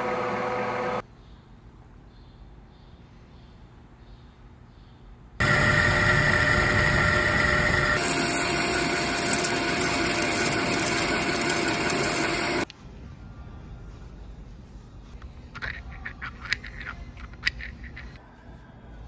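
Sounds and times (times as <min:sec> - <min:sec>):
metal lathe machining whine: 0:05.4 - 0:12.7.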